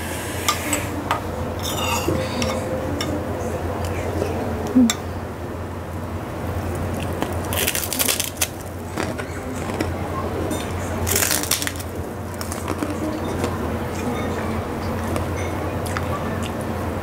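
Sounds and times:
crunching cracker being chewed: 0:06.6 - 0:13.6.

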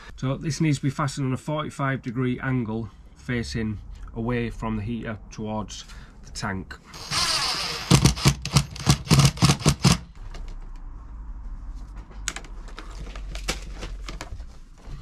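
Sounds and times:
cordless drill clacking: 0:07.0 - 0:10.1.

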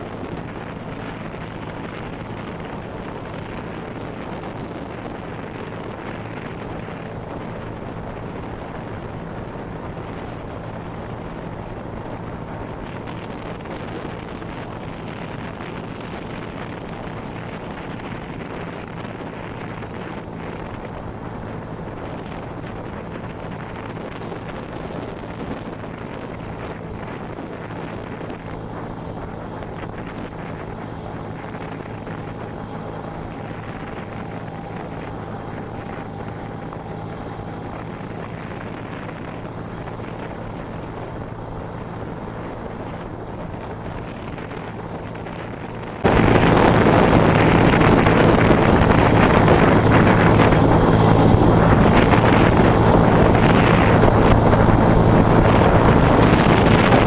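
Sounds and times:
wind rushing on microphone: 0:00.0 - 0:57.0
scooter engine humming: 0:28.2 - 0:44.9.

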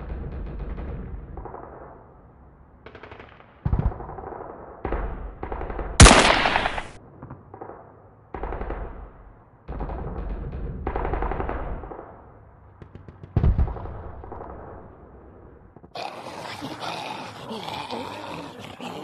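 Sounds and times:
gunfire bursts: 0:02.9 - 0:07.0.

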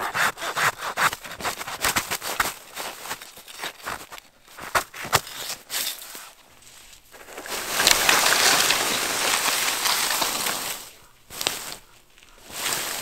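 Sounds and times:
hand saw on wood: 0:00.0 - 0:02.2
loud rustling hiss: 0:07.4 - 0:13.0.

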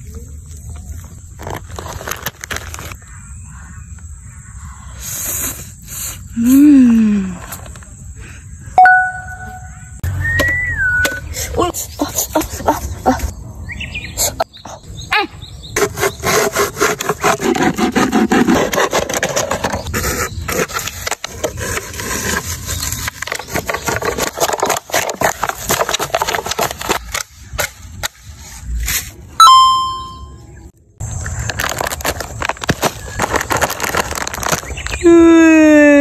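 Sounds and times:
plastic bottles crinkling: 0:00.8 - 0:03.0, 0:20.5 - 0:27.3, 0:31.2 - 0:35.1
bright ringing ding: 0:08.8 - 0:09.7, 0:29.4 - 0:30.4.

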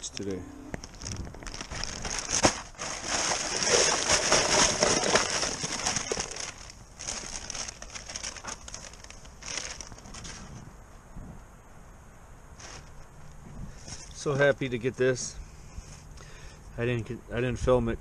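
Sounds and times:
plastic bag crinkling: 0:00.8 - 0:10.6, 0:12.6 - 0:13.0
plastic litter rattling into bin: 0:00.8 - 0:10.6.

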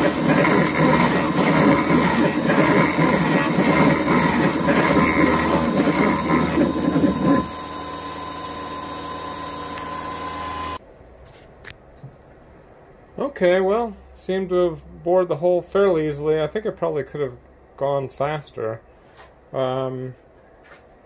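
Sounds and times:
milling machine cutting metal: 0:00.0 - 0:10.8
spindle whine: 0:00.0 - 0:10.8.

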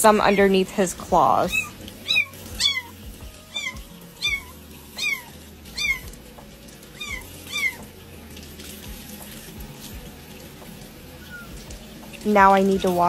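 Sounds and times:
kitten meowing: 0:01.5 - 0:02.9, 0:03.5 - 0:06.1, 0:07.0 - 0:07.8.

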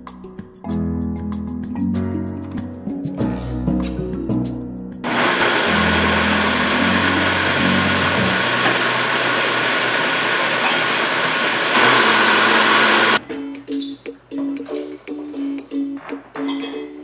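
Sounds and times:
blender whirring: 0:05.0 - 0:13.2.

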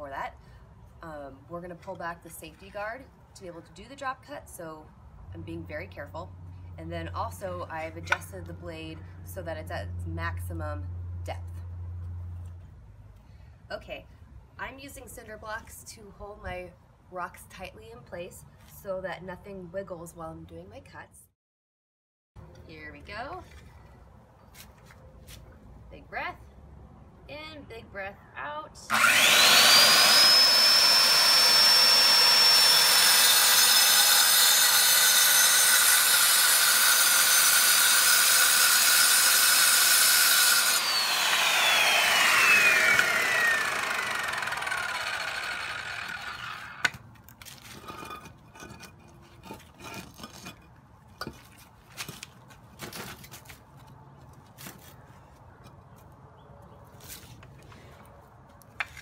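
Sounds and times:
circular saw cutting rock: 0:28.9 - 0:47.0.

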